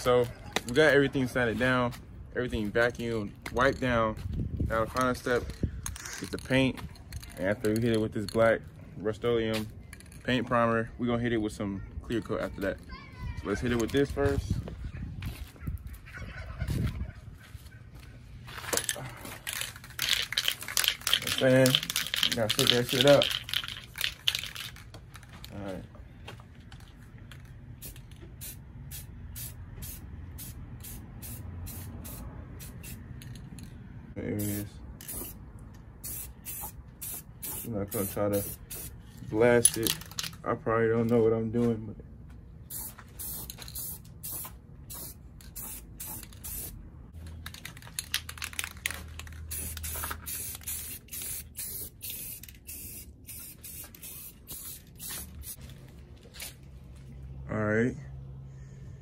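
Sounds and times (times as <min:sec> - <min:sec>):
aerosol can spraying in bursts: 0:34.4 - 0:35.4, 0:36.0 - 0:39.0, 0:42.7 - 0:46.8, 0:49.4 - 0:55.6.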